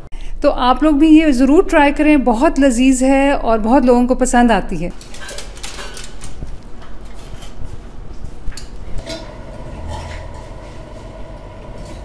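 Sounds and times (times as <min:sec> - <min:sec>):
metal spoon scraping steel pot: 0:09.0 - 0:11.1.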